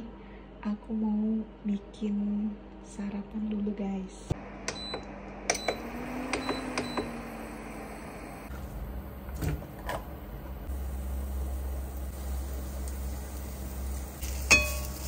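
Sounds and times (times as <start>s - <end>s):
electrical hum: 0.0s - 15.0s
deeper low hum: 4.2s - 14.2s.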